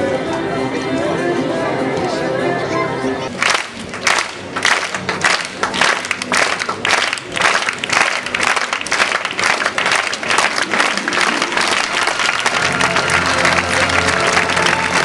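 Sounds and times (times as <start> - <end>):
faint music: 0.0 - 15.0
audience applauding: 3.4 - 15.0.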